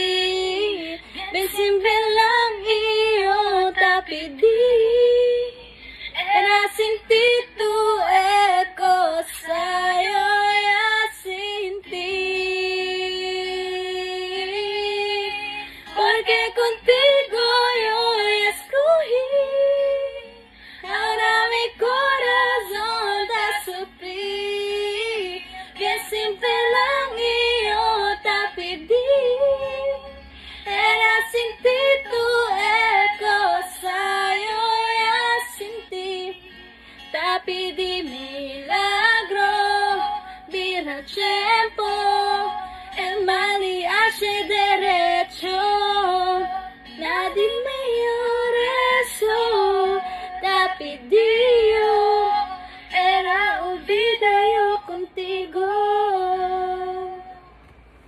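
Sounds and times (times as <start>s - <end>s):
woman singing: 0.0s - 57.6s.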